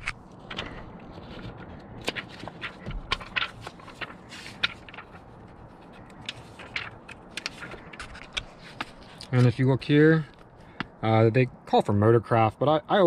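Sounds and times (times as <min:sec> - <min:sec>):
paper pages leafed through: 0:00.0 - 0:09.7.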